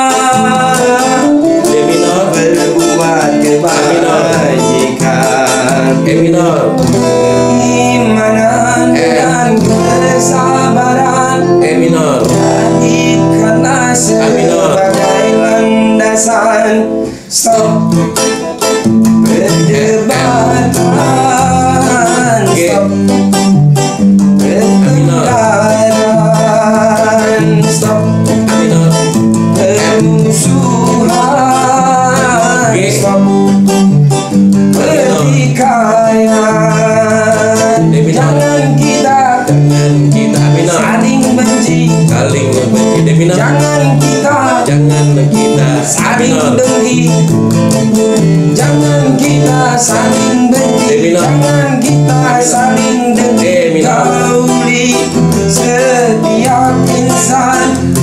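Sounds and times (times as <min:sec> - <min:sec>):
lead electric guitar melody: 0:00.0 - 0:58.0
low rhythm guitar: 0:00.0 - 0:58.0.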